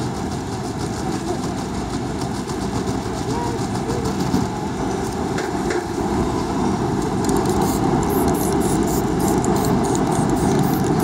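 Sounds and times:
street traffic rumble: 0.0s - 11.0s
spray can ball rattling: 7.3s - 11.0s.

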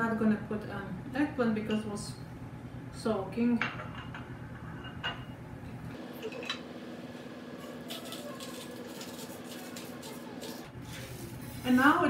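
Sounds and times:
steady low hum: 0.0s - 7.9s
kitchen scrapes and rustles: 7.5s - 12.0s.

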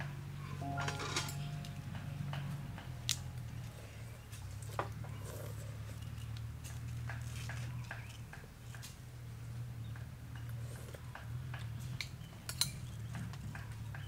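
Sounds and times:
low steady hum: 0.0s - 7.0s.

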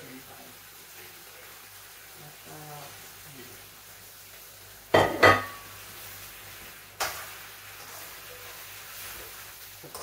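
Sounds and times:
knock on frying pan: 4.9s - 5.6s
plate and utensil clinking on pan: 5.0s - 5.6s.

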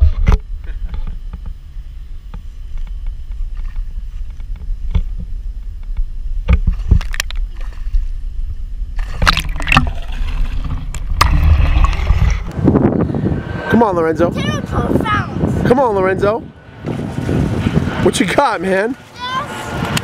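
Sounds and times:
muffled underwater rumbling and gurgling: 0.0s - 20.0s
underwater clicks: 2.3s - 8.1s, 8.9s - 12.6s
water splashing: 6.5s - 12.6s, 16.8s - 20.0s.

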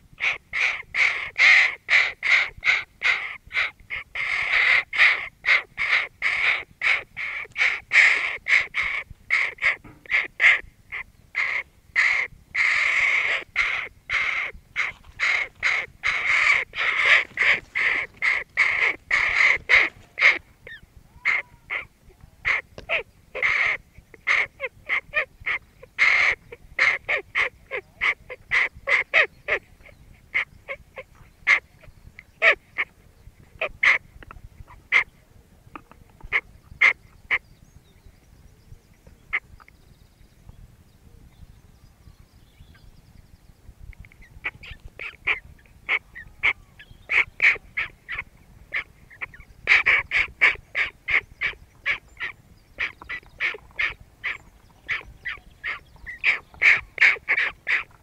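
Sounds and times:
crow cawing: 11.4s - 20.4s, 21.2s - 21.9s.

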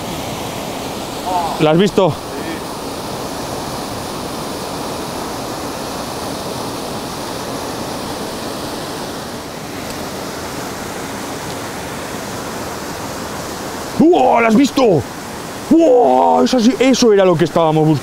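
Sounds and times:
waterfall rushing into pool: 0.0s - 18.0s.

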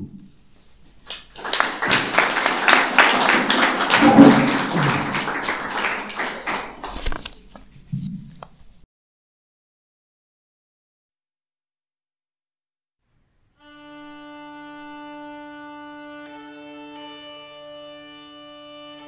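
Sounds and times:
audience applauding: 1.0s - 7.4s.

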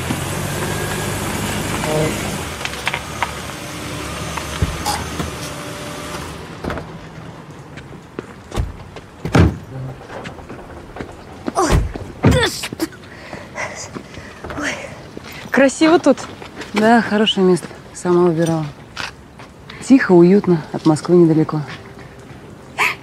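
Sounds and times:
car engine running: 0.0s - 7.2s
car doors thumping shut: 4.5s - 5.4s, 8.5s - 10.4s, 11.5s - 12.7s.

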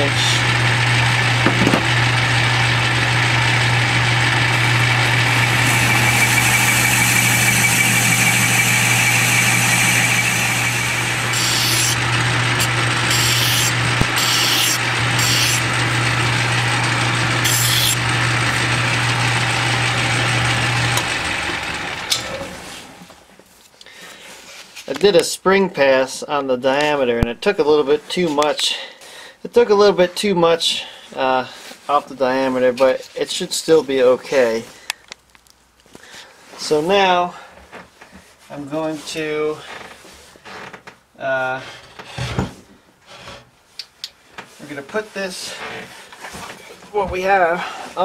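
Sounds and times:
metal lathe motor hum: 0.1s - 22.4s
lathe winding down: 0.1s - 23.0s
hand file rasping on metal: 5.2s - 15.7s, 17.4s - 18.0s.

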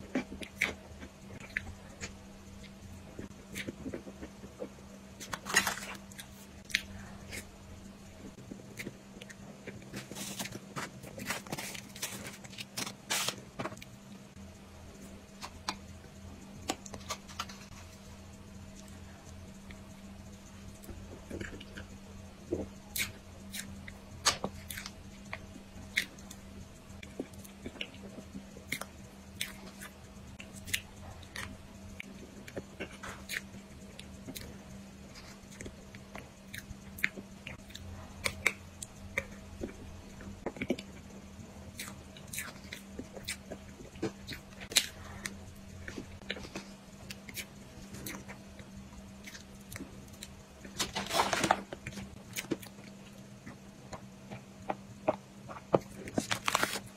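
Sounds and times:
faint steady hum: 0.0s - 56.9s
person chewing with wet clicks: 0.1s - 5.4s, 6.0s - 7.5s, 18.7s - 50.8s
plastic packaging rustling: 5.2s - 6.0s, 10.0s - 13.8s, 50.7s - 52.1s, 56.0s - 56.9s.

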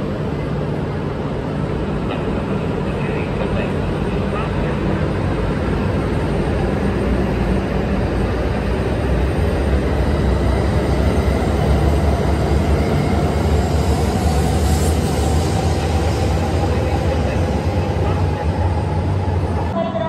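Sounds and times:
train rumbling past: 0.0s - 20.0s.

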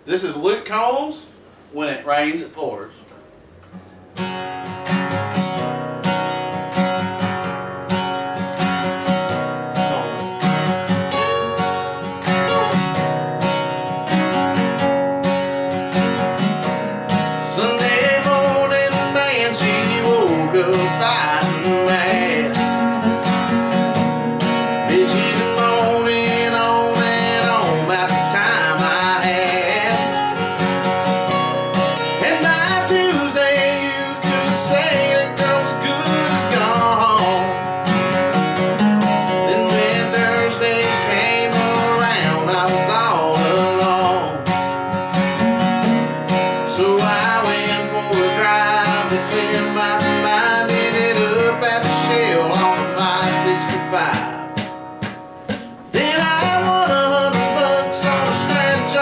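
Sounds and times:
acoustic guitars strummed and picked: 3.1s - 59.0s
man singing country song: 9.7s - 13.2s, 17.3s - 54.6s, 55.9s - 59.0s.

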